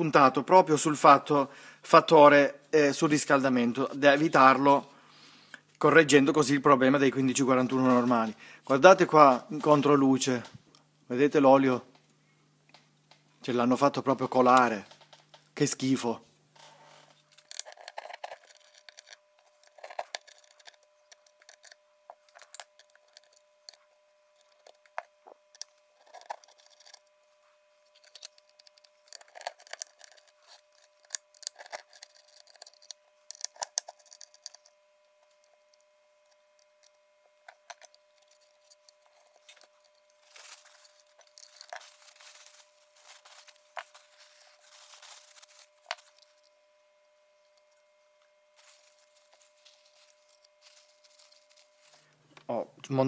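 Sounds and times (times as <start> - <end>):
faint steady tone: 18.2 - 52.8.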